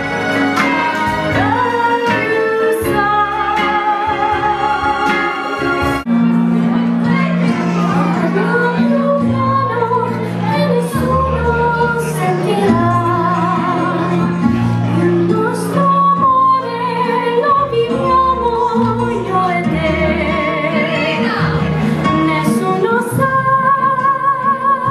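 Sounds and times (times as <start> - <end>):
instrumental accompaniment: 0.0 - 24.9
woman singing into microphone: 0.4 - 6.0, 7.3 - 24.9.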